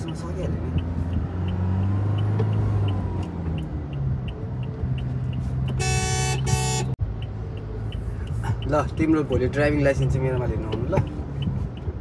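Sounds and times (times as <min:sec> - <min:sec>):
light even ticking: 0:00.0 - 0:05.8, 0:07.0 - 0:12.0
car engine and tyre hum: 0:00.0 - 0:12.0
car horn blasts: 0:05.7 - 0:07.0.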